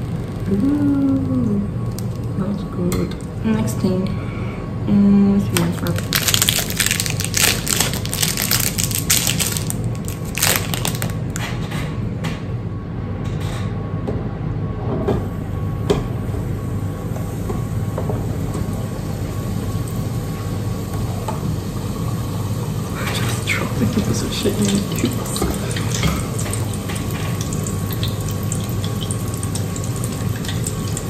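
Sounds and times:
oil sizzling in a deep fryer: 16.2s - 31.0s.

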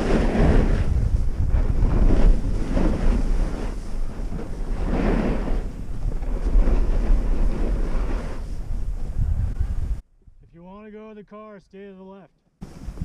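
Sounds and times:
skis scraping on packed snow: 0.0s - 9.2s
wind rushing over microphone: 0.0s - 10.5s, 12.6s - 13.0s.

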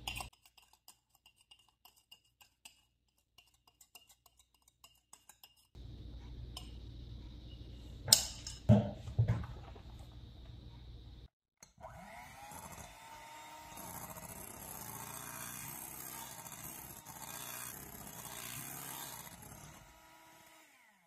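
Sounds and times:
electric hand mixer running: 11.8s - 21.0s.

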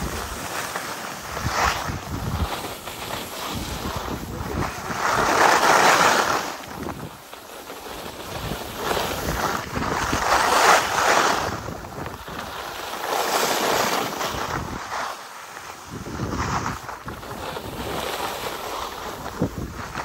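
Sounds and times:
skis scraping on packed snow: 0.0s - 20.0s
wind buffeting microphone: 1.2s - 5.5s, 6.6s - 7.2s, 8.1s - 12.7s, 14.2s - 14.9s, 15.8s - 20.0s.

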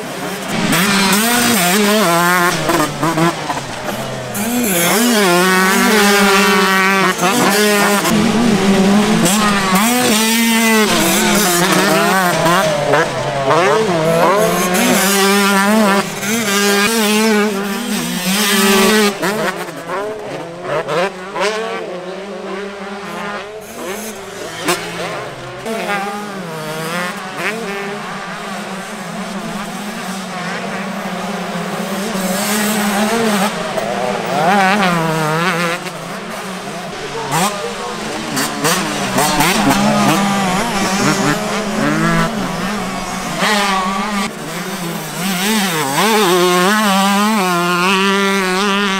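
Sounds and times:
motocross bikes revving: 0.0s - 48.9s.

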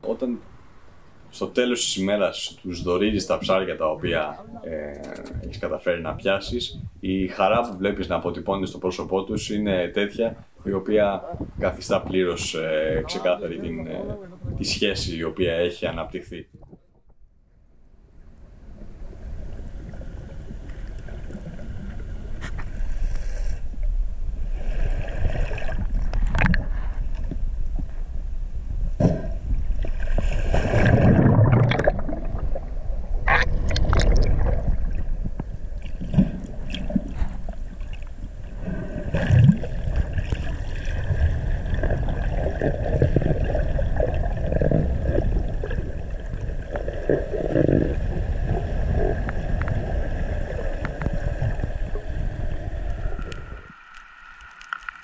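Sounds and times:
underwater rumble of moving water: 0.0s - 55.0s
gurgling bubbles: 29.2s - 55.0s.

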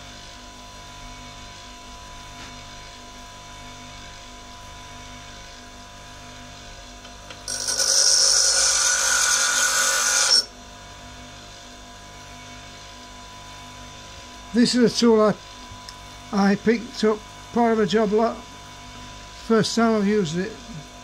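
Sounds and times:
bench grinder motor humming: 7.0s - 10.6s
metal tool grinding on wheel: 7.4s - 10.5s.

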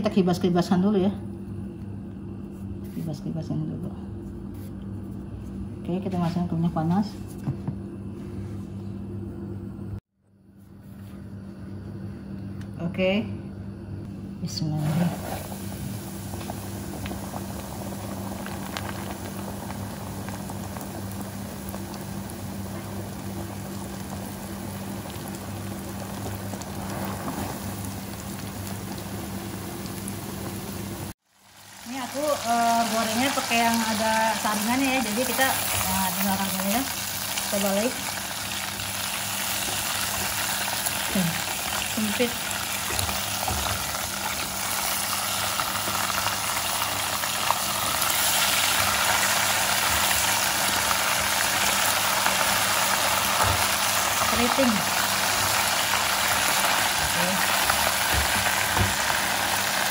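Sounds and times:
low steady hum: 0.0s - 59.9s
chicken deep-frying in oil: 14.6s - 59.9s.

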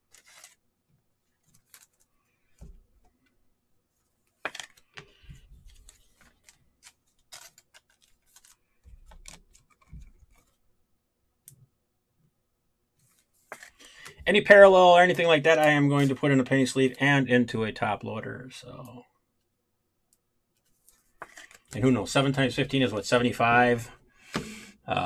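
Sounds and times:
trading cards rustling and clicking: 0.0s - 0.6s, 1.3s - 3.4s, 4.2s - 10.6s, 13.0s - 16.3s, 20.6s - 22.6s.

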